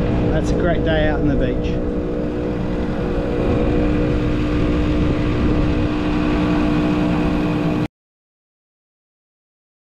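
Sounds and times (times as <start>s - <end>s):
air compressor running: 0.0s - 7.9s.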